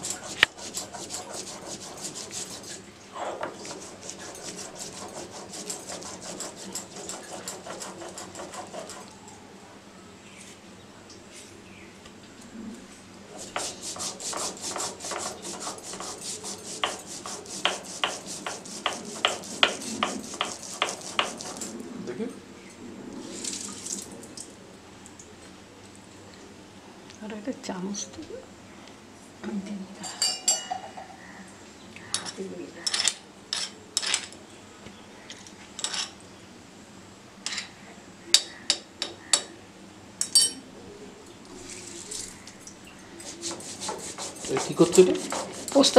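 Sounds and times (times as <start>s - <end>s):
kitchen utensil scraping: 0.0s - 9.1s, 13.3s - 21.8s, 32.1s - 34.4s, 35.8s - 36.2s, 43.2s - 45.9s
stone roller knocking on stone slab: 13.5s - 21.6s, 43.5s - 45.7s
sharp knocks: 17.6s - 21.4s.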